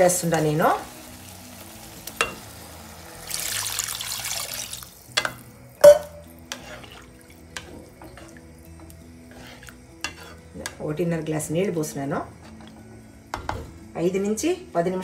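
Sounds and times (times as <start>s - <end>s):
water hissing in hot pan: 0.0s - 5.4s, 6.1s - 10.5s.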